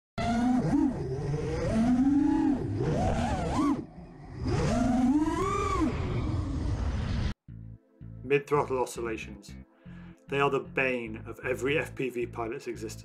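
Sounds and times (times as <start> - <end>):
quadcopter motors whining: 0.2 - 6.9.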